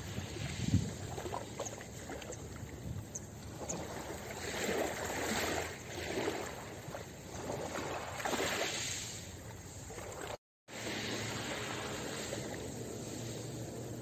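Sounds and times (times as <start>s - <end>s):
waves washing over pebbles: 3.8s - 14.0s.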